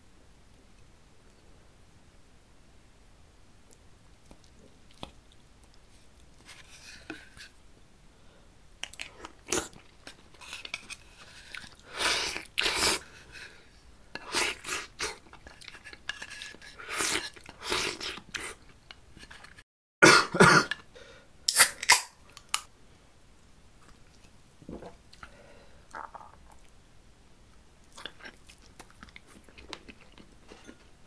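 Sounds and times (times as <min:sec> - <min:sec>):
man clearing his throat: 0:20.0 - 0:20.8
man coughing: 0:20.0 - 0:20.8.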